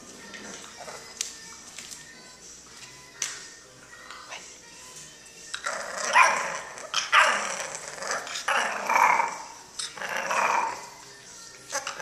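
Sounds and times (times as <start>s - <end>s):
puppy barking: 6.0s - 9.5s.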